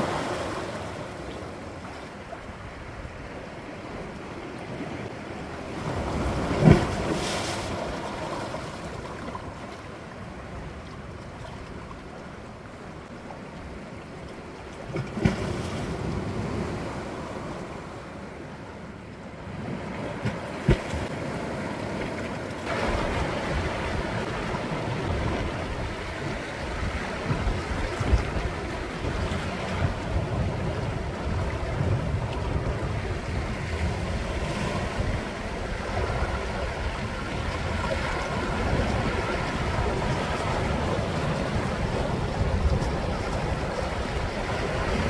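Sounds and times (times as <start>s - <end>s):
sea waves surging against rocks: 0.0s - 45.0s
waves slapping: 0.0s - 45.0s
wind buffeting microphone: 22.6s - 45.0s.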